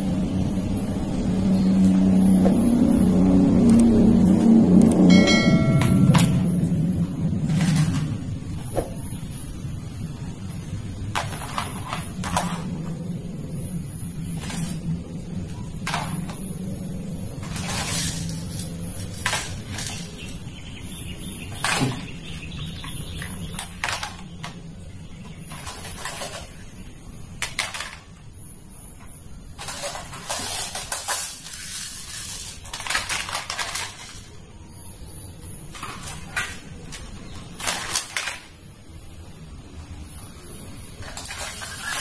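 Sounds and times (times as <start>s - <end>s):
plastic toy guns clattering: 7.4s - 8.2s, 11.1s - 12.7s, 17.4s - 20.2s, 21.5s - 22.1s, 23.2s - 24.6s, 25.5s - 26.7s, 27.4s - 28.2s, 29.6s - 34.4s, 35.7s - 38.7s, 41.0s - 42.0s
scraping and rustling: 17.3s - 20.6s, 25.3s - 28.1s, 29.6s - 34.5s, 40.7s - 42.0s.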